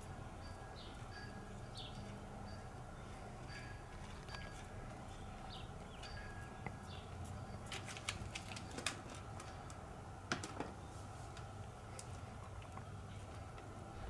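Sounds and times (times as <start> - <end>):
birds chirping: 0.0 - 7.7
low background hum: 0.0 - 14.0.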